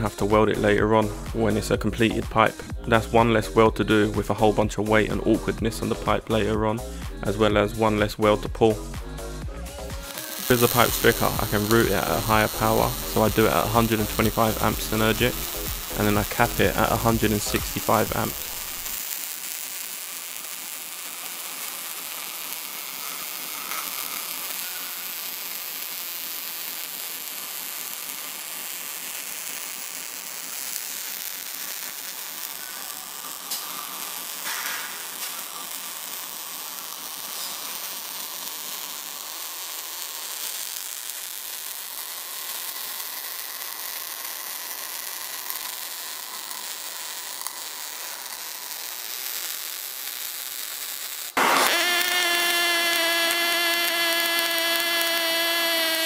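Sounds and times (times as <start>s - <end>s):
welding arc burning: 0.0s - 56.0s.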